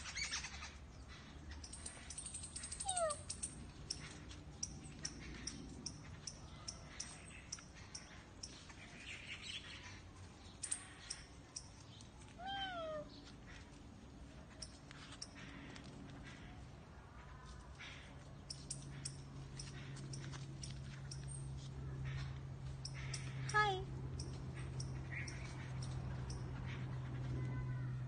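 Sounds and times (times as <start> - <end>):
small birds chirping: 0.0 - 28.0
cat meowing: 12.4 - 13.1.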